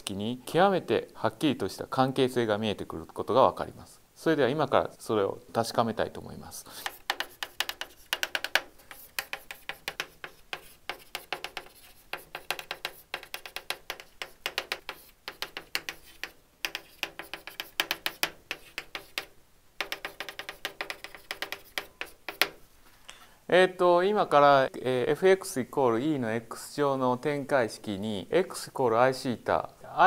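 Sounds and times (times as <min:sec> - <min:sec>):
chalk tapping and scratching: 0:06.7 - 0:22.7.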